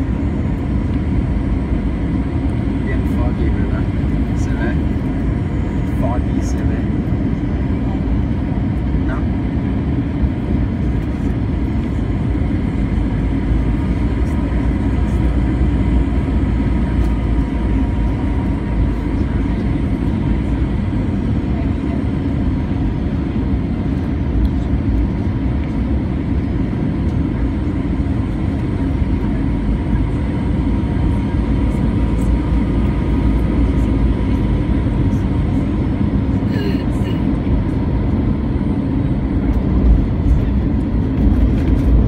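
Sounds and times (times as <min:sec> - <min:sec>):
jet engines rumbling: 0:00.0 - 0:42.0.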